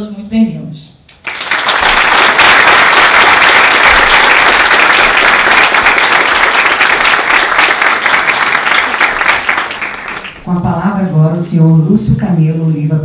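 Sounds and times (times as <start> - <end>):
audience applauding: 1.2 - 10.4.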